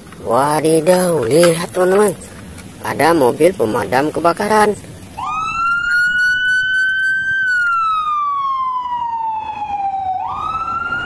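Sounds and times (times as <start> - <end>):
fire engine siren wailing: 5.2 - 11.0.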